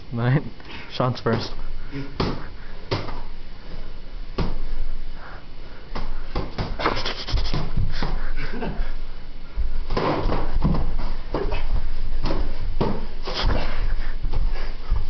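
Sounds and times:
boxing gloves knocking and thumping: 2.2 - 3.3, 6.0 - 8.2, 9.9 - 14.5.

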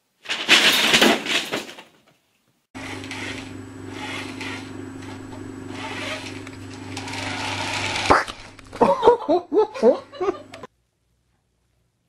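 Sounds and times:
low hum: 2.8 - 10.7.

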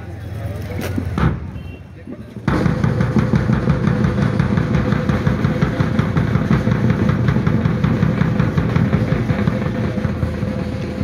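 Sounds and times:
drum strokes: 2.4 - 11.0.

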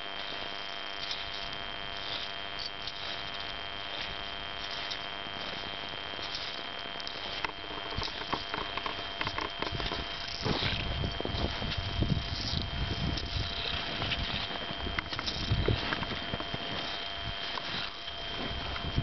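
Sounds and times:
faint high whine: 0.0 - 19.0
footsteps crunching in snow: 0.0 - 19.0
steady hiss: 0.0 - 19.0.

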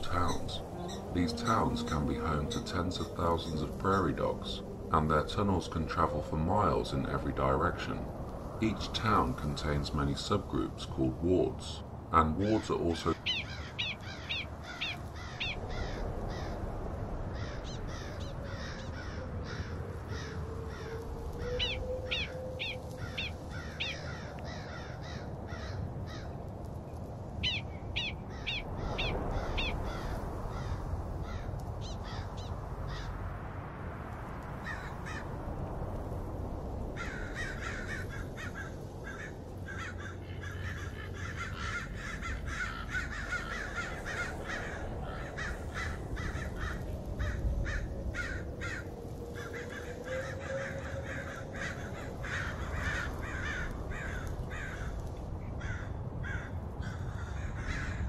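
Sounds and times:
low outdoor rumble: 0.0 - 58.0
animal chattering: 13.1 - 16.0.

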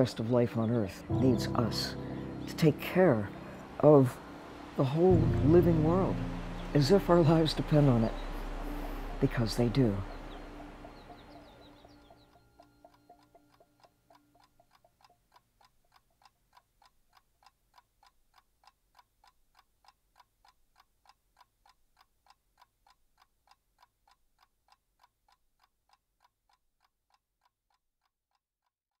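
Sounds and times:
faint ticking: 0.0 - 28.1
soundtrack music: 1.0 - 12.3.

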